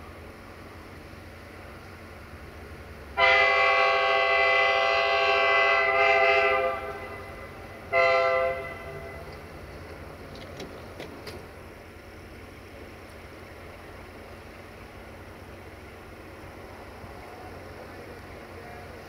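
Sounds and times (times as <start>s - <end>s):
locomotive air horn blasts: 3.2s - 9.3s.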